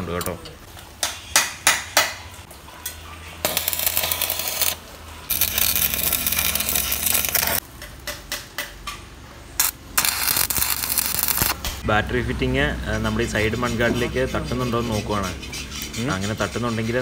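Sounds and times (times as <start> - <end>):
welding arc crackling: 3.4 - 7.8, 9.6 - 11.8
sharp ticks of arc striking: 9.6 - 11.8.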